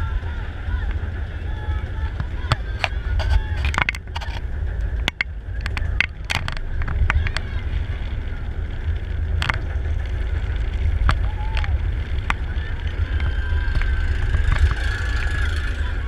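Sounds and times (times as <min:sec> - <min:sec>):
coaster train low rumble: 0:00.0 - 0:16.0
chain lift clicks: 0:13.7 - 0:16.0.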